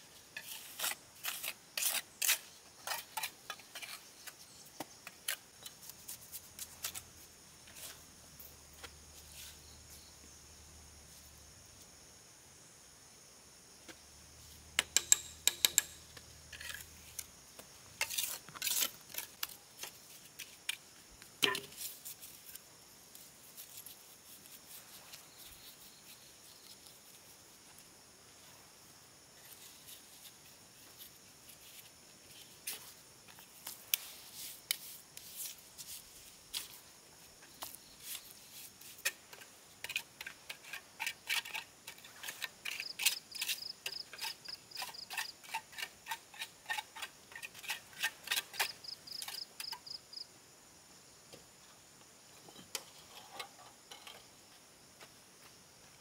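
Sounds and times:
trowel scraping mortar: 0.4 - 7.0, 18.0 - 20.5, 38.1 - 49.4
high insect buzz: 4.0 - 56.0
trowel knocking on bricks: 14.8 - 16.0.

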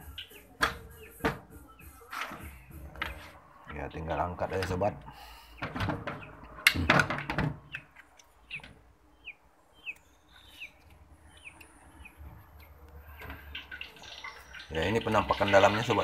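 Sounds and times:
small bird chirping: 0.0 - 3.3, 7.6 - 15.9
washing machine cover knocking and scraping: 5.6 - 7.7.

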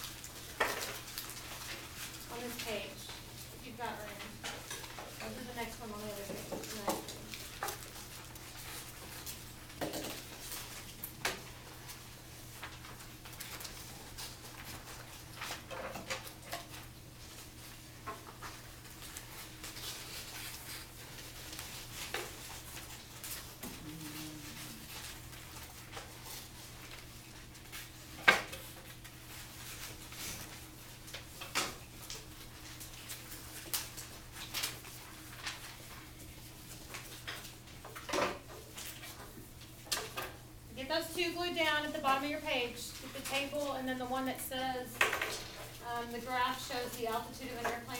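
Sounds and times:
low electrical hum: 0.0 - 47.9
steady low hum: 23.2 - 25.9.

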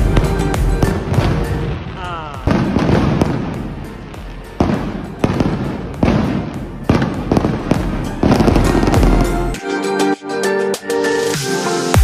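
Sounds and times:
firework shells bursting: 2.5 - 9.6.

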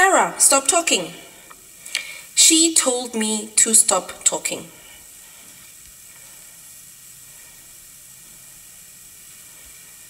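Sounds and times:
faint hiss: 0.0 - 10.0.

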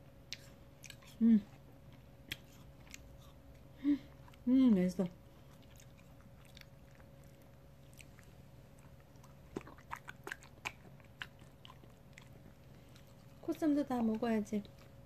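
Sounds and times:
faint room hum: 0.0 - 15.0
dog licking and smacking: 5.4 - 15.0.

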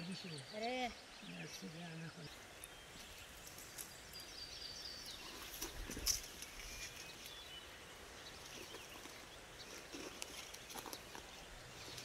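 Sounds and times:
rustles and clicks of gathering figs: 2.3 - 4.4, 5.1 - 7.6, 8.3 - 12.0.

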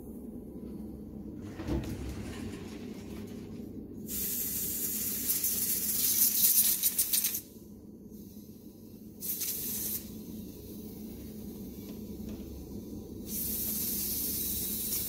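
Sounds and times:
gas hissing from fitting: 4.0 - 7.5, 9.2 - 15.0.

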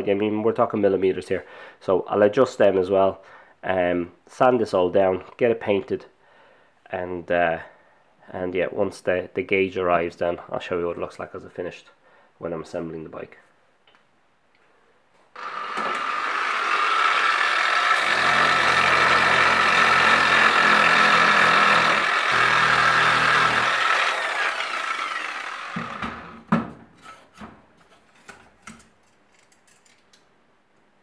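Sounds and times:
electric sander sanding: 15.4 - 26.5.

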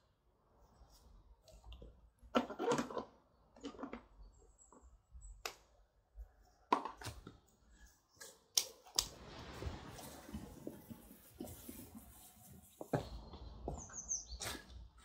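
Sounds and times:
rustling: 9.1 - 14.7.

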